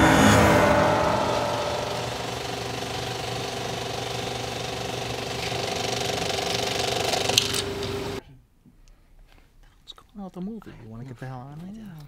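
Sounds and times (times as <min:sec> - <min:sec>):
projector hum: 0:00.0 - 0:04.0
film projector clattering: 0:02.8 - 0:08.2.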